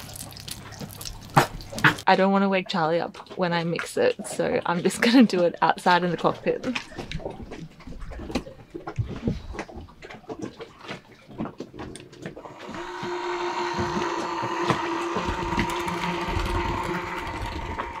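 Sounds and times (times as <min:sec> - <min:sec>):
electric mixer running: 0:12.4 - 0:18.0.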